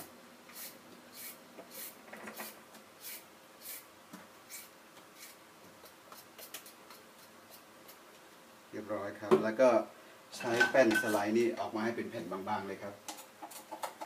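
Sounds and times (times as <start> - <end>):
vegetable peeler scraping carrot: 0.5 - 3.8.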